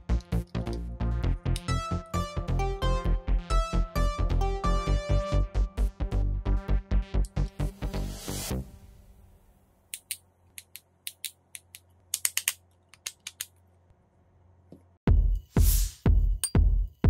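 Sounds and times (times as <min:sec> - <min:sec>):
electronic background music: 0:00.0 - 0:09.0
sharp plastic clicks: 0:09.9 - 0:13.6.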